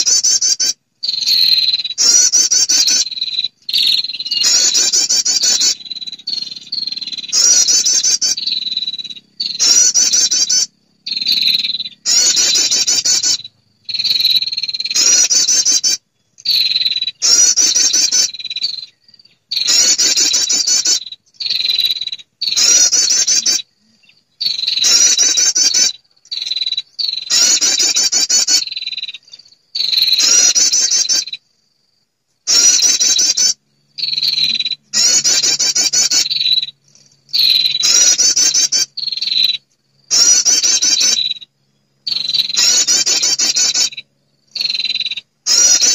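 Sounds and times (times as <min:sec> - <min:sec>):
bird trilling call: 0:00.0 - 0:31.4, 0:32.5 - 0:45.9.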